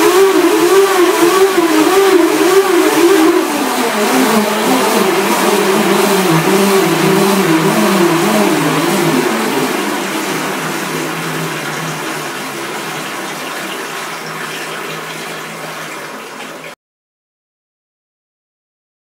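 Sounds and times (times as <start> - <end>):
electric motor humming: 0.0 - 14.1
propeller churning water: 0.0 - 16.8.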